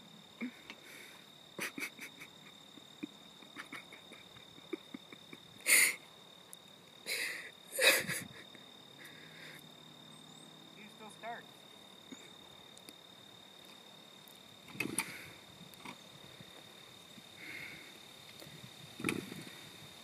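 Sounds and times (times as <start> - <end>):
high insect drone: 0.0 - 20.0
breathy rushes of noise: 14.8 - 15.6.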